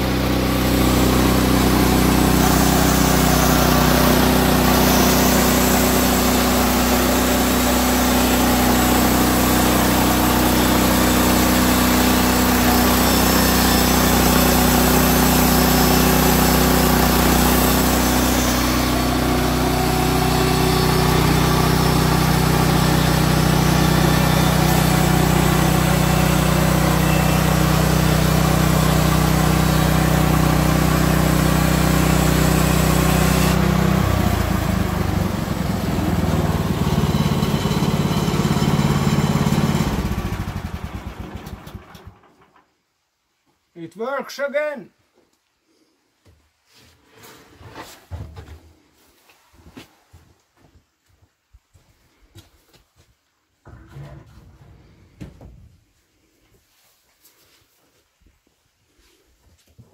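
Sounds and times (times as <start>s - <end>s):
sawmill petrol engine running: 0.0s - 42.6s, 53.6s - 55.1s
band blade cutting log: 10.4s - 27.6s, 31.1s - 33.9s.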